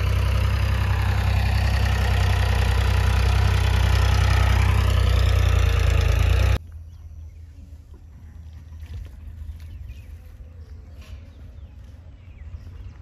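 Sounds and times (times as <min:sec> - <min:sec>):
engine humming: 0:00.0 - 0:07.2.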